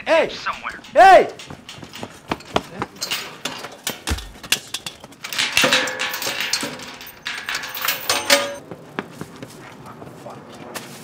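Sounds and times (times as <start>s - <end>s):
ringing metal tones: 0.3s - 8.6s
bicycle rattling and clattering: 0.5s - 8.6s.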